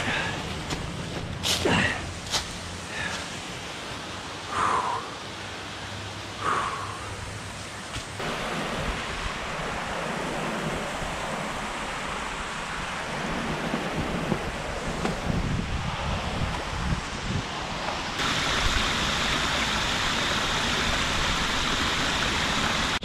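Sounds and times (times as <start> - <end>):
scuffs in dry leaves: 0.0 - 3.5
creek water rushing over rocks: 0.0 - 17.0, 17.6 - 23.0
wind noise on microphone: 8.0 - 23.0.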